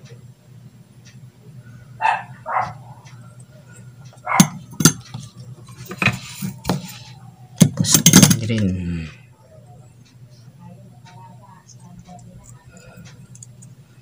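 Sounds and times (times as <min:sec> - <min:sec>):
dog barking: 0:02.0 - 0:03.0, 0:04.2 - 0:04.6.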